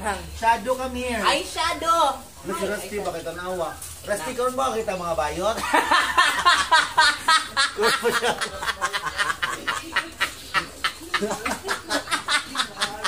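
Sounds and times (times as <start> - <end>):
people laughing: 5.5 - 13.0.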